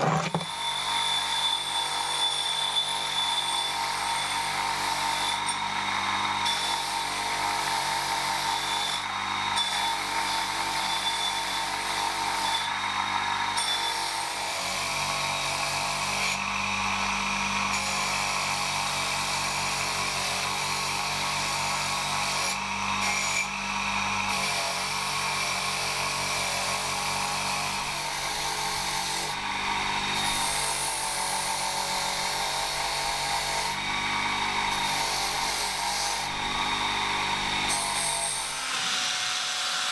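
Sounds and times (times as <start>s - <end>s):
bench motor hum: 27.8s - 37.8s.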